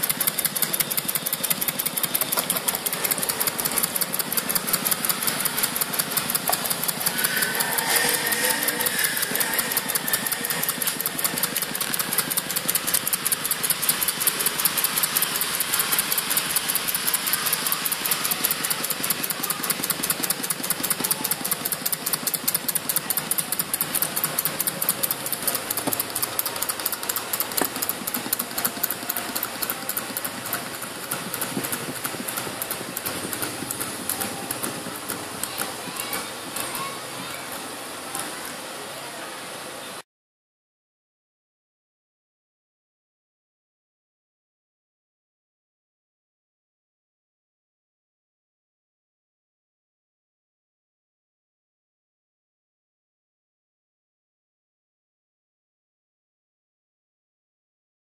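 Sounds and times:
small engine linkage clattering: 0.0s - 38.4s.

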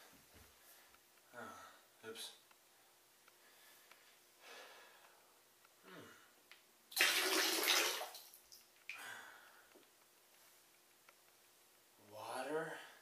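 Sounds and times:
water pouring and splashing: 6.9s - 8.7s.

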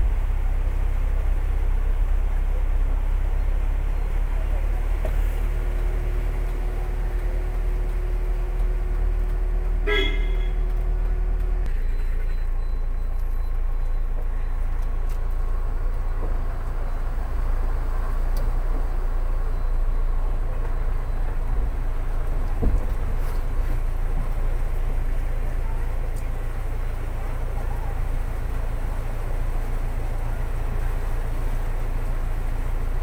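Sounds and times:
car engine rumble: 0.0s - 33.0s
car horn toot: 9.7s - 10.9s.

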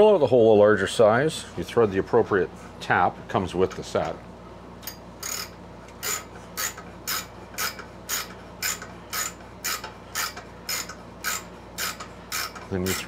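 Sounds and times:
ratcheting tap wrench clicking: 4.8s - 13.0s.

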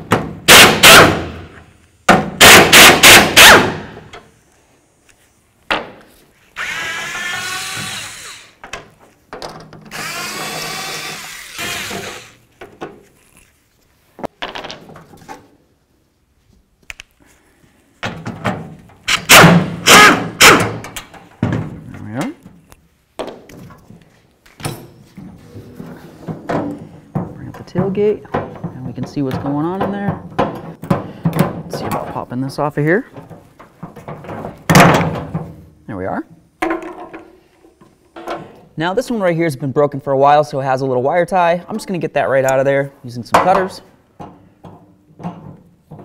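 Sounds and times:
pneumatic impact wrench hammering: 0.0s - 1.5s, 2.2s - 4.0s, 6.6s - 8.6s, 9.9s - 12.4s, 19.1s - 21.1s.

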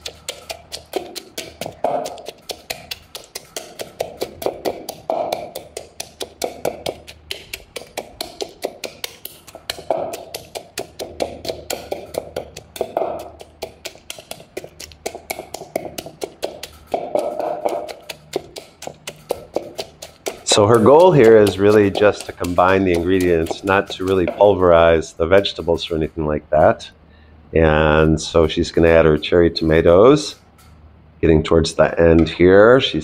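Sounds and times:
wooden pestle knocking in mortar: 0.0s - 26.2s.

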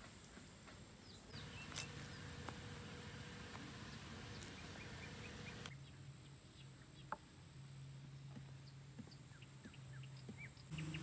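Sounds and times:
faint bird chirps: 1.0s - 2.5s, 8.6s - 11.0s.

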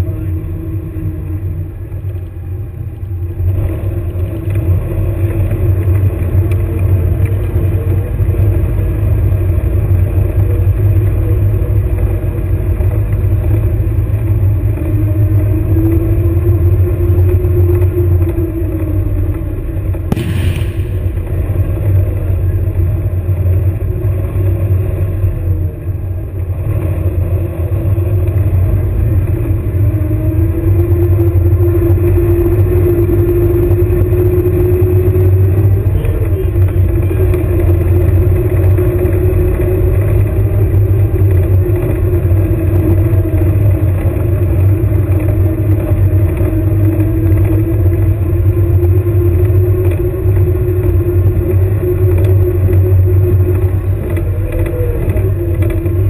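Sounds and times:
vehicle engine running: 0.0s - 56.0s
sharp bang: 20.1s - 21.6s.

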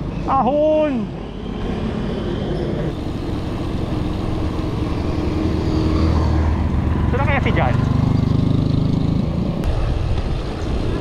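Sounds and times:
road rumble: 0.0s - 11.0s
motorcycle engine running: 3.0s - 9.6s
wind noise: 7.8s - 11.0s.

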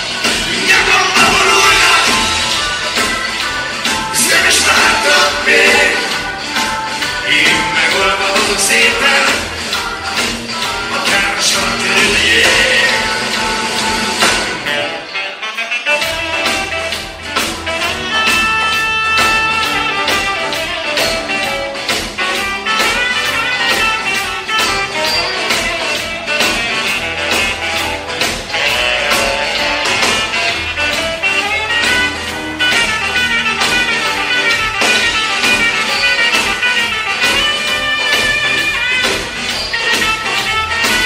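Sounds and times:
rock band playing: 0.0s - 41.0s.

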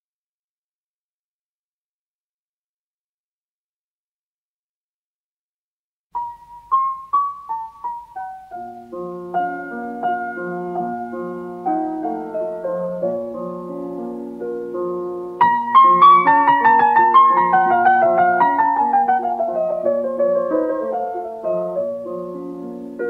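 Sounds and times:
solo piano playing: 6.2s - 23.0s.

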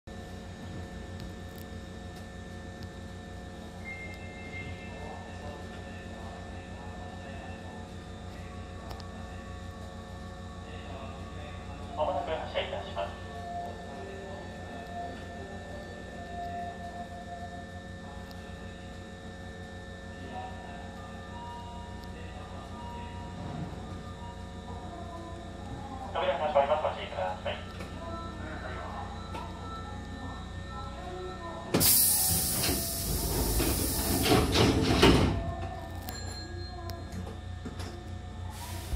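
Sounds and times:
train car electrical hum: 0.1s - 38.9s
train doors sliding shut: 31.8s - 35.5s.

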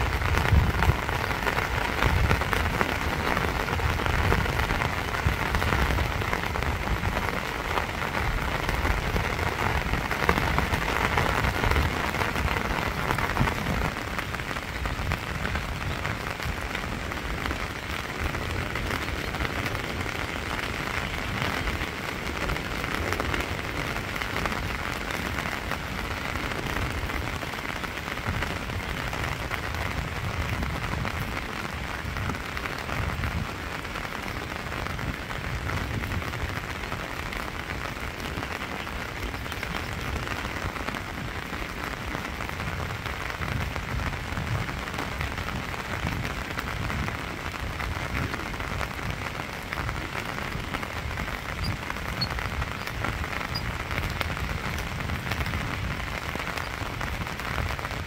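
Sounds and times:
rain falling on water: 0.0s - 58.0s.

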